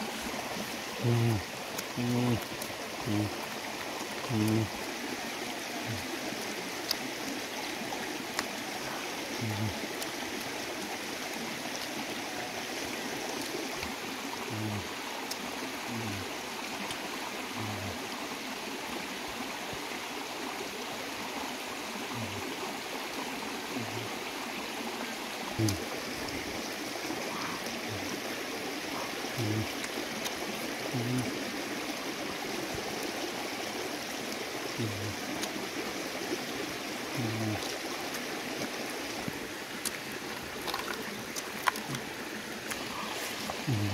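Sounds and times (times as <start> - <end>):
stream running over rocks: 0.0 - 43.9.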